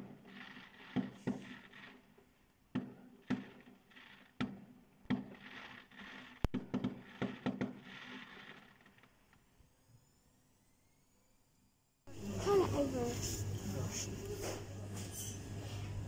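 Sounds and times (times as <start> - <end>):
fireworks bursting with crackle: 0.0 - 9.7.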